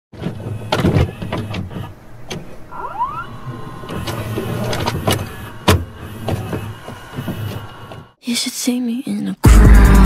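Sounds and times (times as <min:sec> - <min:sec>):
steady low hum: 0:00.4 - 0:08.2
rising motor whine: 0:02.4 - 0:08.2
mechanism clicks and clunks: 0:03.4 - 0:08.1.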